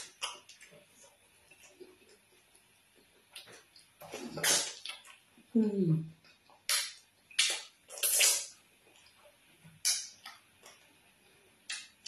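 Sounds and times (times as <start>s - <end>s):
wet sucking and licking: 3.4s - 5.2s, 6.7s - 9.1s
lip smacks: 6.4s - 9.2s, 9.8s - 10.8s, 11.7s - 12.0s.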